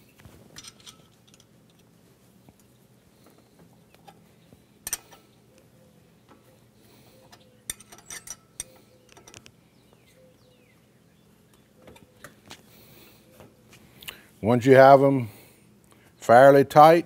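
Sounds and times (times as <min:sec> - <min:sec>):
wrench clinking on metal bolts: 0:00.6 - 0:01.8, 0:04.8 - 0:05.2, 0:07.7 - 0:09.5.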